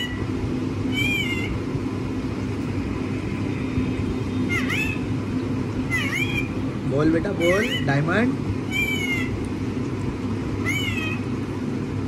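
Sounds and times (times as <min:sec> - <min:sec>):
parakeet squawking: 0:00.0 - 0:00.3, 0:00.9 - 0:01.6, 0:04.4 - 0:05.1, 0:05.8 - 0:06.7, 0:07.3 - 0:09.4, 0:10.6 - 0:11.3
steady low hum: 0:00.0 - 0:12.0.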